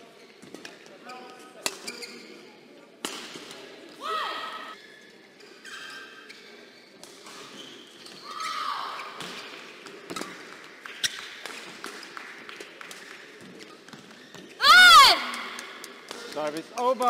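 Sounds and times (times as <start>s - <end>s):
shoe squeaking on court floor: 0.0s - 2.8s, 4.7s - 10.4s, 13.6s - 14.6s
rackets hitting shuttlecock: 3.0s - 3.7s.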